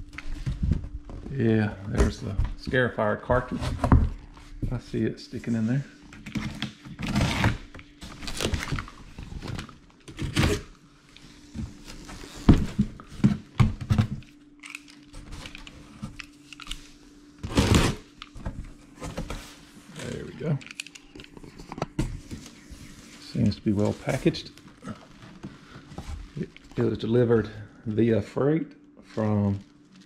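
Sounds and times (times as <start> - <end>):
cardboard tearing: 6.4 - 10.7, 17.4 - 18.1.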